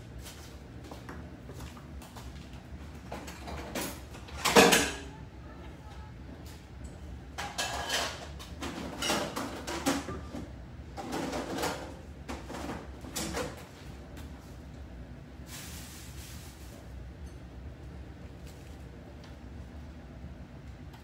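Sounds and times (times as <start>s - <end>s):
kitchen knocks and scrapes: 7.4s - 10.3s.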